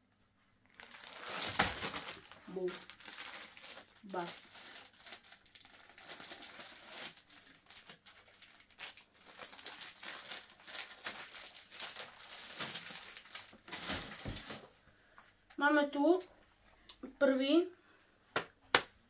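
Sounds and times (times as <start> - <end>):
plastic bag crinkling: 0.6 - 14.8.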